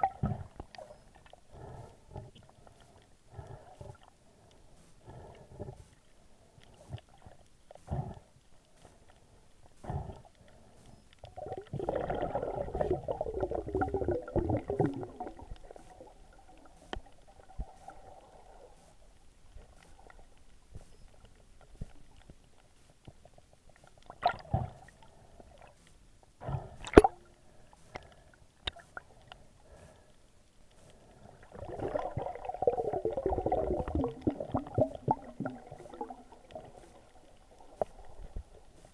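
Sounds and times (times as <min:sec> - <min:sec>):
underwater air bubbles gurgling: 0:11.2 - 0:18.8, 0:31.3 - 0:38.7.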